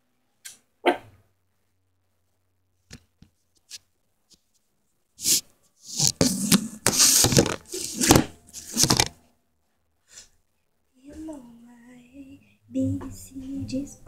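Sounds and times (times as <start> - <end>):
camera handling noise: 6.0 - 9.2.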